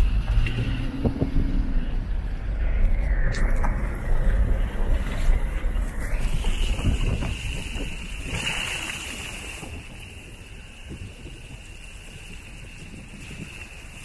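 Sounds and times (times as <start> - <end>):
steady high whine: 0.0 - 8.2
wind buffeting microphone: 0.0 - 14.0.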